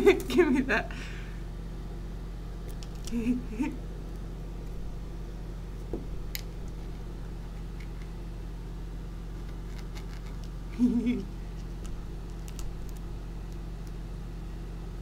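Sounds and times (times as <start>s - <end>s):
low electrical hum: 0.0s - 15.0s
faint scrapes and ticks: 9.4s - 10.6s.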